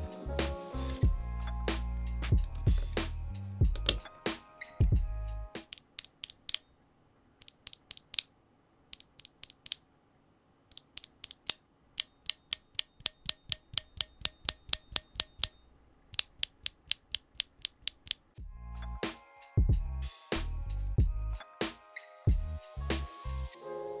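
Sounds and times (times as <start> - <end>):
keyboard switches clacking: 3.8 - 4.1, 10.7 - 15.5.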